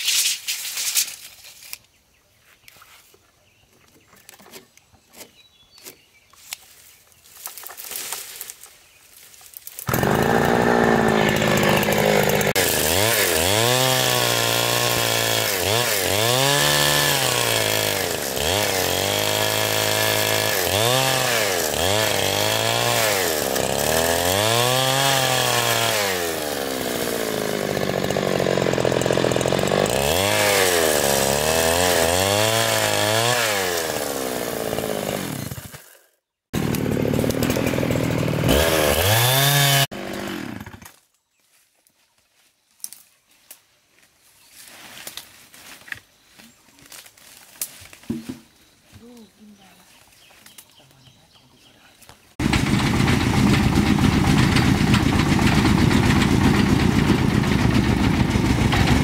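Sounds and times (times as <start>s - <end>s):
chainsaw revving: 9.8s - 41.0s, 52.3s - 59.0s.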